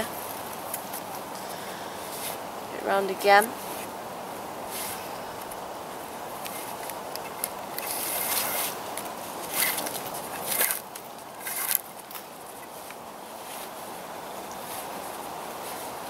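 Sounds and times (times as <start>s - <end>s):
outdoor hiss: 0.0s - 16.0s
cord scraping against wooden poles: 6.4s - 13.8s.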